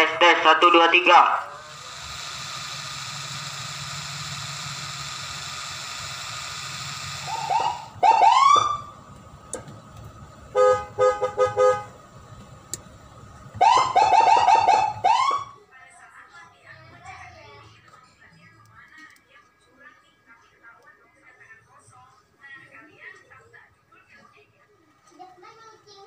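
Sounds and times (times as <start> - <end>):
siren hiss: 0.0 - 9.0, 13.6 - 15.6
siren rising whoops: 7.2 - 8.9, 13.6 - 15.5.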